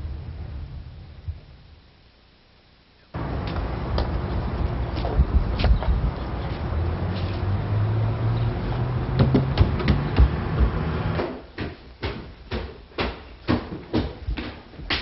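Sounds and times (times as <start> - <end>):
steady low hum: 0.0 - 13.4
footsteps on wooden stairs: 9.1 - 15.0
knocks: 9.2 - 15.0.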